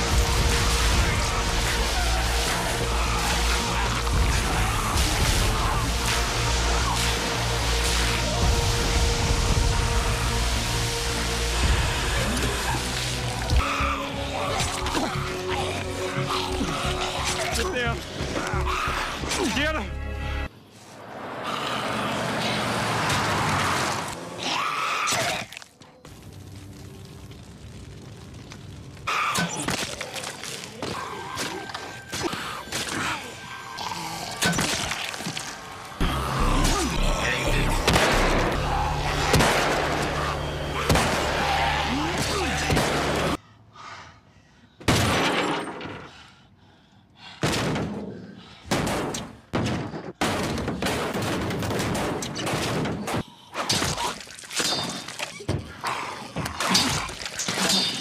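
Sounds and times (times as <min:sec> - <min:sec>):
dramatic soundtrack music: 0:00.0 - 0:25.4, 0:30.8 - 0:43.4
fight thuds and smashing impacts: 0:47.4 - 0:48.1.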